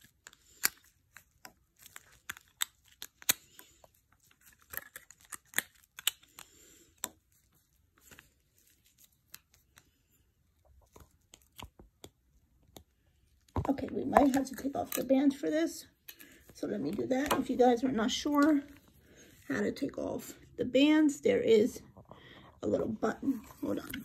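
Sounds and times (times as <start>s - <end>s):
plastic crinkling: 0.0s - 12.0s.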